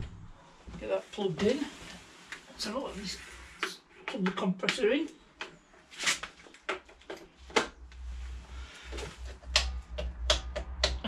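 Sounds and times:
low hum: 0.0 - 0.8.

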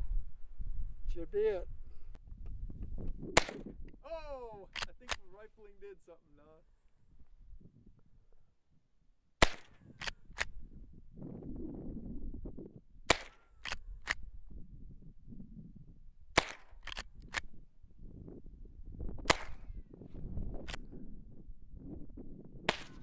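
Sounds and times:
rifle shots: 3.3 - 3.7, 9.4 - 10.6, 13.1 - 14.2, 16.4 - 17.1, 19.3 - 19.7, 22.7 - 23.0
bullets ricocheting whine: 22.6 - 23.0.

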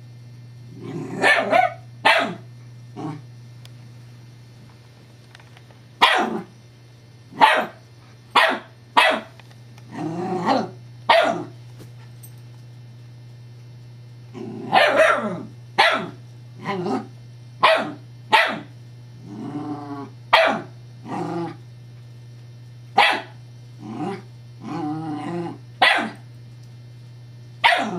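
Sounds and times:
puppy barking: 1.2 - 2.4, 6.0 - 6.5, 7.4 - 7.8, 8.4 - 9.3, 10.4 - 11.5, 14.7 - 16.2, 17.6 - 18.7, 20.3 - 20.7, 23.0 - 23.4, 25.8 - 26.2, 27.6 - 27.9.

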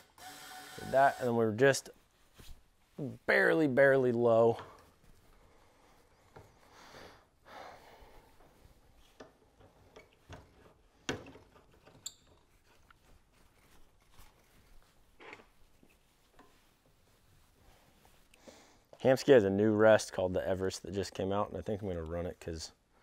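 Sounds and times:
soft rustling: 1.9 - 6.9, 12.3 - 19.1.

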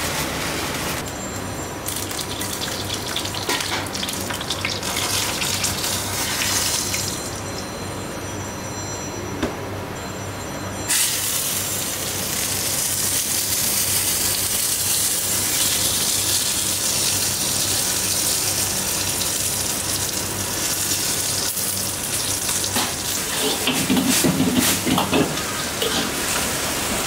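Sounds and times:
low kitchen hum: 0.0 - 27.0
tofu sizzling in stone bowl: 1.9 - 7.1.

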